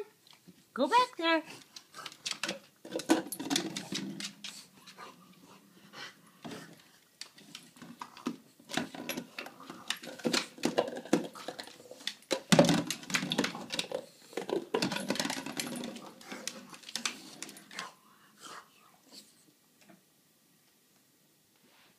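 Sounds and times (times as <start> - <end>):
dog claws clicking on wooden floor: 1.6 - 5.0.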